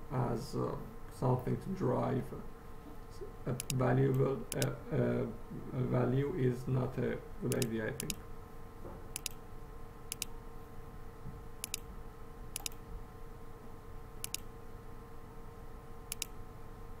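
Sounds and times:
faint steady hum: 0.0 - 17.0
computer mouse double clicks: 7.5 - 8.2, 9.2 - 9.4, 10.1 - 10.3, 11.6 - 11.9, 12.6 - 12.8, 14.2 - 14.5, 16.1 - 16.4.

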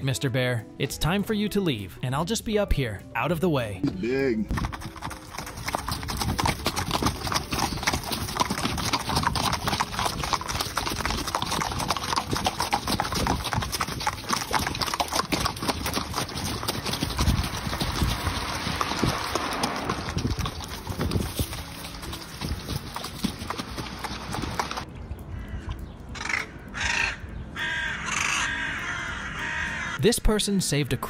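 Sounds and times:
horses hooves trotting: 3.8 - 24.9.

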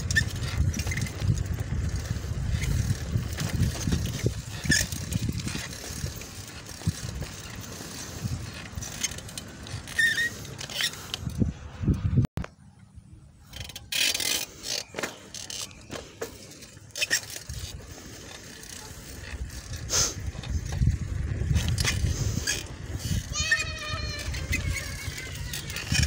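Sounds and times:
wind rumbling on microphone: 0.0 - 13.5, 17.3 - 26.0
high wavering cry: 23.2 - 26.0.

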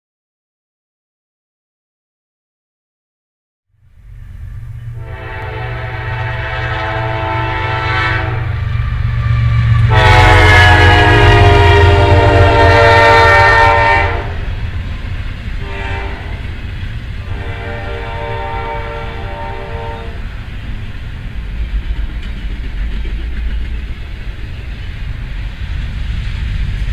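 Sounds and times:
train rumbling past: 3.7 - 26.9
locomotive air horn blasts: 4.1 - 14.6, 15.6 - 16.5, 17.2 - 20.3.

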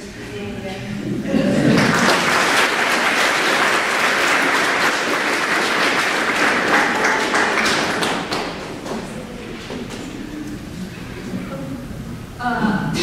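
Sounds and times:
audience applauding: 1.5 - 10.1.

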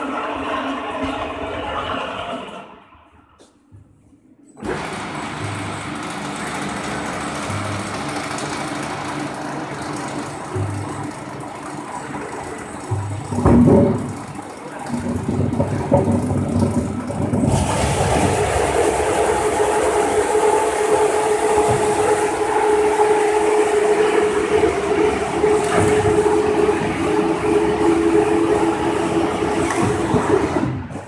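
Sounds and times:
lathe low rumble: 4.6 - 31.0
electric motor hum: 17.5 - 30.8.

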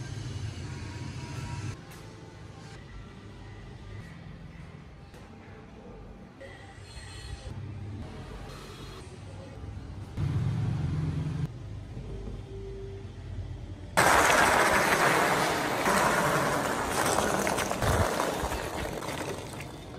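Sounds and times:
wooden wheels rolling on concrete: 14.0 - 19.9.

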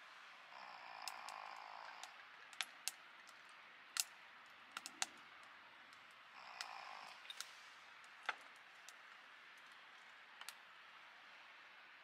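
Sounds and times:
soft hiss: 2.0 - 12.0
sharp clicks and crackles: 4.8 - 6.0.

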